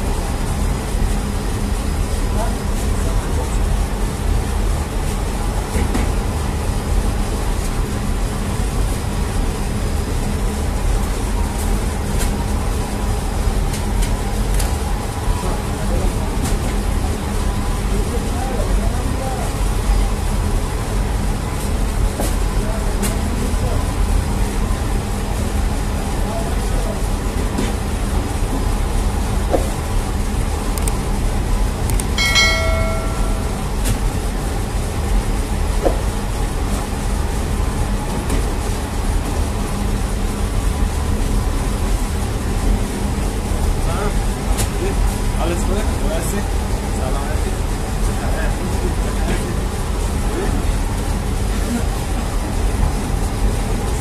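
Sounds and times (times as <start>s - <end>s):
oven low hum: 0.0s - 54.0s
bell-like ding: 32.2s - 33.9s
faint steady whine: 32.2s - 34.3s.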